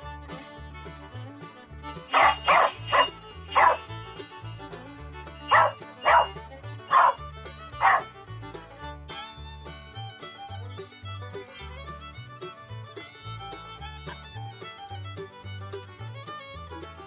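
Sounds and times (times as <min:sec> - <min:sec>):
background music: 0:00.0 - 0:17.0
dog barking: 0:02.1 - 0:03.9, 0:05.5 - 0:07.2, 0:07.8 - 0:08.1.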